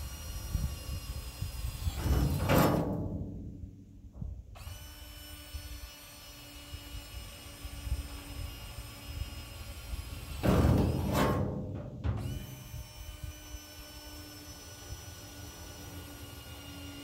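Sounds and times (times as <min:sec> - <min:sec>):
power drill boring through steel: 0:04.6 - 0:11.3, 0:12.2 - 0:17.0
low thumping rumble: 0:10.4 - 0:12.8.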